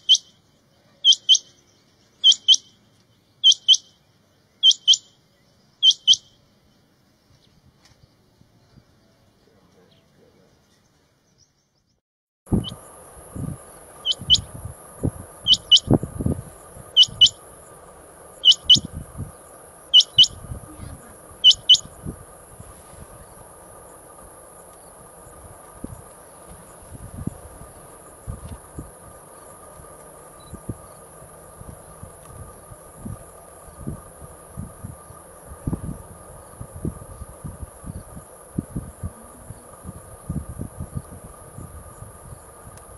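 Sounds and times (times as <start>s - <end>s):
quail calling double notes: 0.0s - 0.4s, 1.0s - 1.6s, 2.2s - 2.8s, 3.4s - 4.0s, 4.6s - 5.1s, 5.8s - 6.4s, 14.0s - 14.6s, 15.4s - 16.0s, 16.9s - 17.6s, 18.4s - 19.0s, 19.8s - 22.1s
high insect trill: 12.5s - 42.9s.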